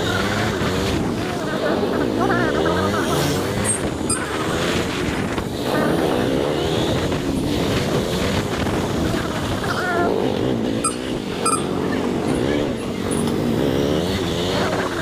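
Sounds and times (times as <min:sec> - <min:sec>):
motorcycle engine running: 0:00.0 - 0:15.0
wind buffeting microphone: 0:03.2 - 0:11.3.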